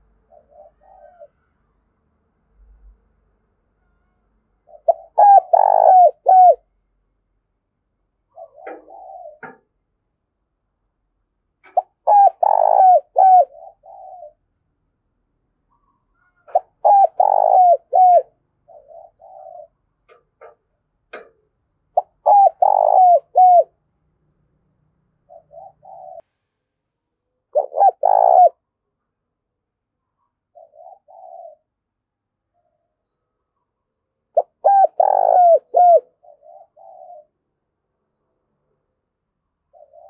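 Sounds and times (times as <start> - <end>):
dove cooing: 0.2 - 1.3, 4.7 - 6.7, 8.3 - 9.7, 11.6 - 14.4, 16.1 - 20.6, 22.0 - 23.8, 25.2 - 26.2, 27.5 - 28.6, 30.5 - 31.9, 34.3 - 37.4, 39.7 - 40.0.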